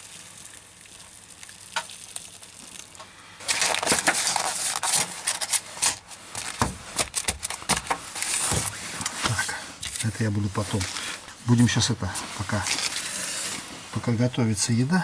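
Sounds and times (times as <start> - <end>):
water poured from kettle: 0.0 - 3.0.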